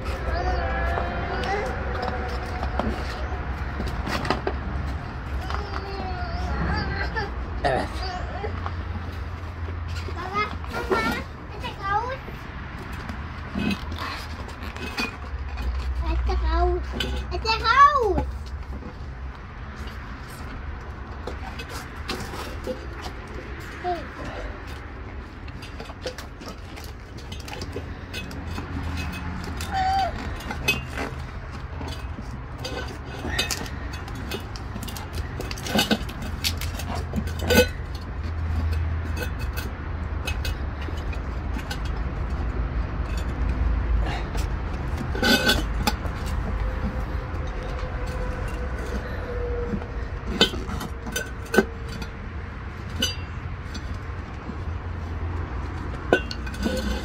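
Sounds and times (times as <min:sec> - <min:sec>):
knocks and clinks of wheel rim: 0:16.8 - 0:57.0.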